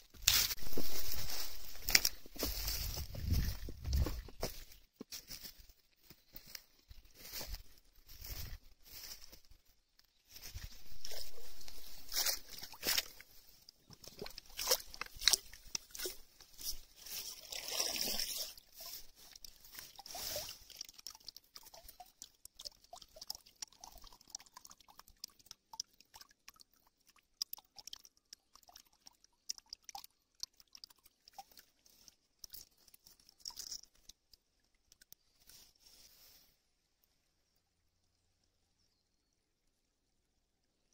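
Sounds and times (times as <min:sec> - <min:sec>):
wet leaves crackling and rustling: 0:00.0 - 0:24.6, 0:30.4 - 0:36.6
net sloshing through water: 0:10.3 - 0:34.4.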